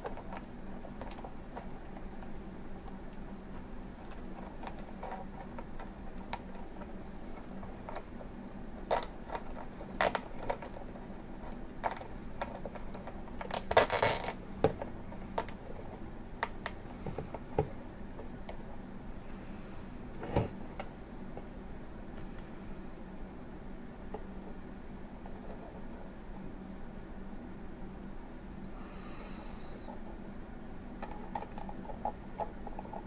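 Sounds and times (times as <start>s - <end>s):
cable tie clicks and scrapes: 0.0s - 8.2s, 8.9s - 17.4s
faint low hum: 0.0s - 33.0s.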